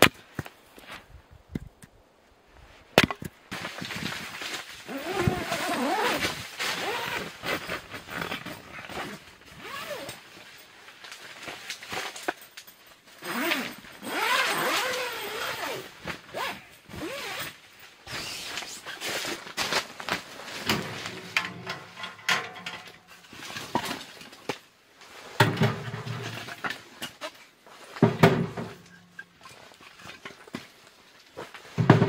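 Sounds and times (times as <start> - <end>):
firewood clattering: 3.0 - 4.8, 19.4 - 32.0
zipper pulled: 4.9 - 10.2, 13.2 - 17.5.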